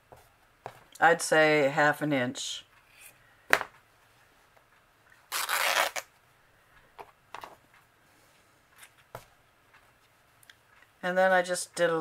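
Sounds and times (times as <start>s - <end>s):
fabric ripping: 5.3s - 6.1s.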